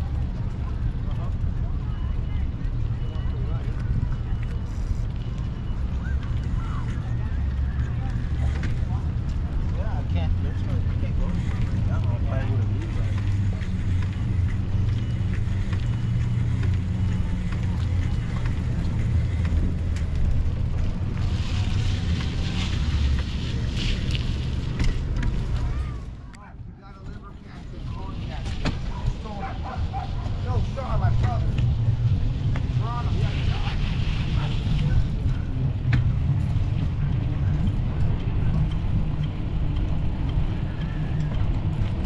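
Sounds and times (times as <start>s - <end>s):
wind rumbling on microphone: 27.4s - 42.0s.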